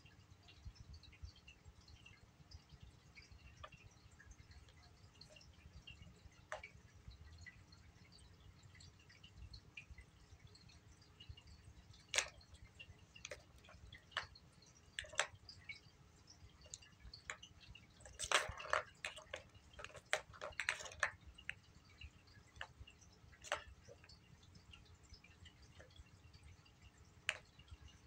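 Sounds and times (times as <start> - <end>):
plastic balls clattering in tracks: 15.0 - 15.4, 18.0 - 21.2, 23.4 - 24.2.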